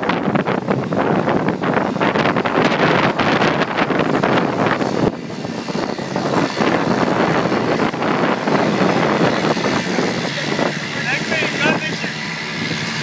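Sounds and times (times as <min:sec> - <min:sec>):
outboard motor running: 0:00.0 - 0:13.0
water rushing and splashing: 0:00.0 - 0:13.0
wind buffeting microphone: 0:00.0 - 0:13.0.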